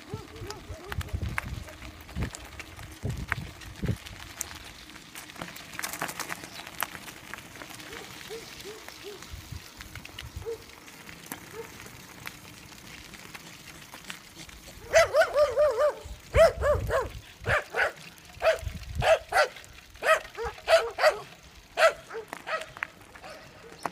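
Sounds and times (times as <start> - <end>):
dog barking: 7.9 - 9.2, 11.5 - 11.8, 14.8 - 23.5.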